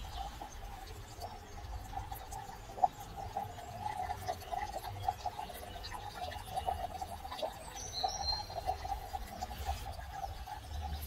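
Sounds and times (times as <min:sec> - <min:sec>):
bird chirping: 0:07.7 - 0:08.8.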